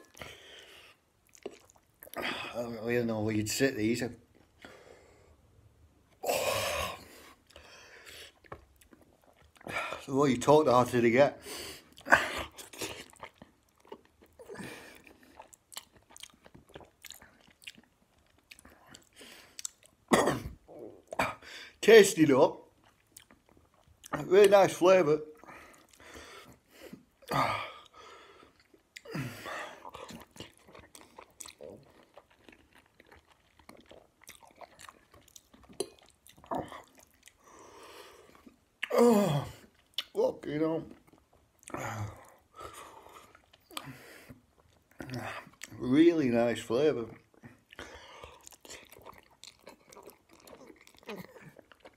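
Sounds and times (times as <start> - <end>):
man chewing and slurping noodles: 0.0 - 2.6, 4.2 - 10.1, 11.4 - 21.5, 22.7 - 24.2, 25.4 - 40.1, 40.9 - 45.8, 47.2 - 51.9
wet mouth clicks: 33.6 - 37.4, 39.8 - 40.2.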